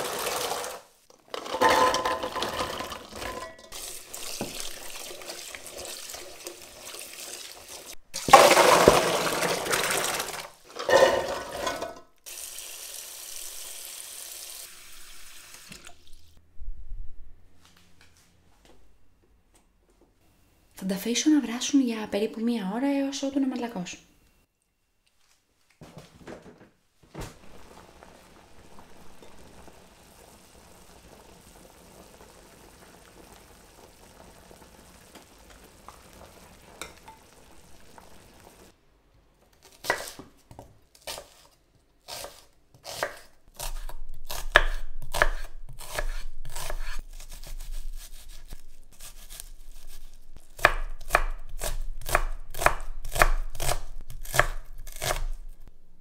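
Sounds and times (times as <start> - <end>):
faint steady hiss: 12.0 - 40.9
knife chopping onion on wooden board: 39.6 - 41.4, 42.1 - 55.5.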